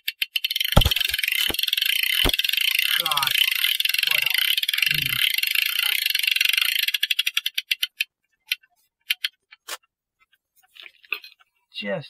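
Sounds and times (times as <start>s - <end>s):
ratchet clicking: 0.0s - 8.0s.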